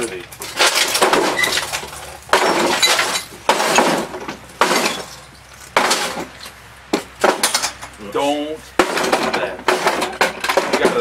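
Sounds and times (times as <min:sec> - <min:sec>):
sledgehammer smashing wreckage: 0:00.4 - 0:06.4
glass breaking: 0:00.4 - 0:06.5.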